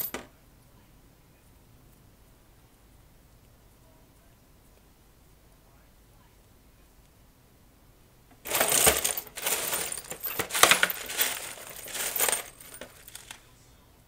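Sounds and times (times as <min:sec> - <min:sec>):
screws and nuts rattling in tray: 0:08.5 - 0:13.4.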